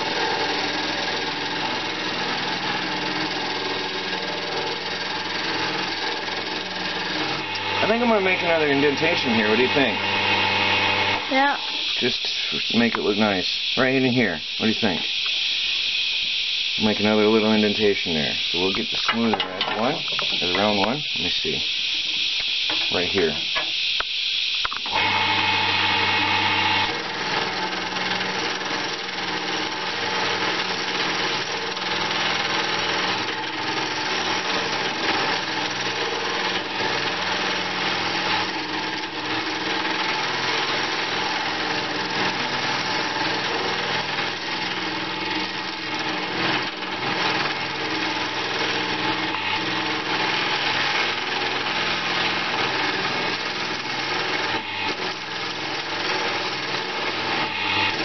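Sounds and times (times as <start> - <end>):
chisel scraping spinning wood: 0.0 - 13.0, 24.8 - 58.0
wood lathe motor hum: 0.0 - 58.0.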